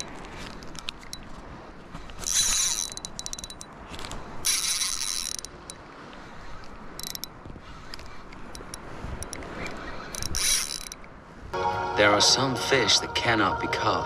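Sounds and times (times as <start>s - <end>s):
fishing reel clicking: 2.2s - 5.9s, 6.5s - 11.1s.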